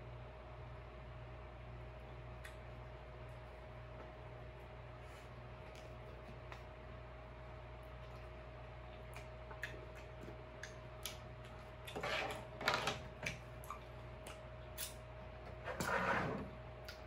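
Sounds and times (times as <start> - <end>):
wet chewing mouth sounds: 5.6 - 6.8, 7.8 - 12.0, 13.6 - 15.0.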